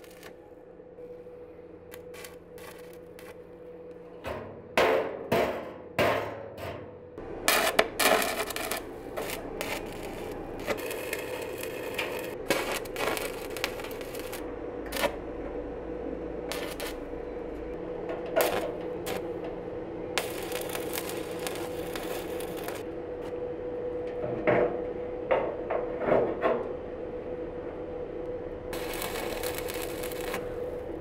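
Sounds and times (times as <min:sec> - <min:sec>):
welding arc crackling and sizzling: 0:00.0 - 0:00.4, 0:01.9 - 0:03.6, 0:07.2 - 0:15.3, 0:16.4 - 0:22.9, 0:28.7 - 0:31.0
steady hum: 0:00.0 - 0:31.0.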